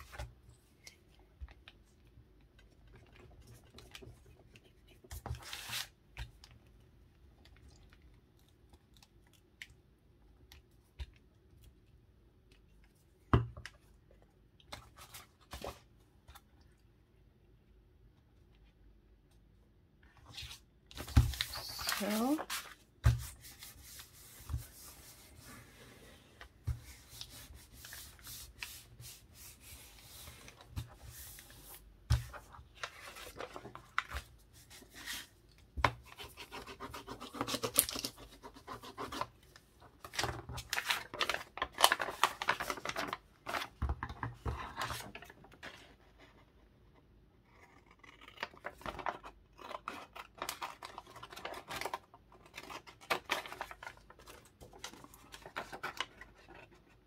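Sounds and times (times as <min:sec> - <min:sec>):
paper rubbing and rustling: 0:40.1 - 0:43.7.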